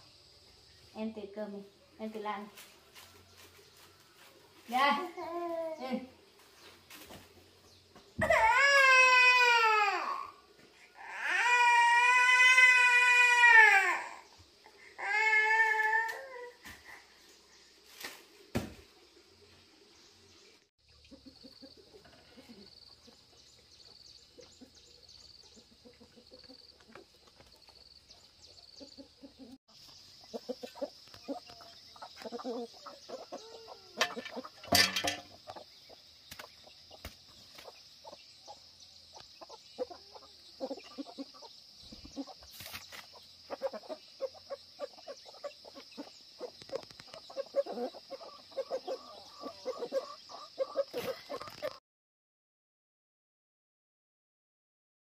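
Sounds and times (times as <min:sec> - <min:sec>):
chickens clucking: 0:20.9 - 0:51.8.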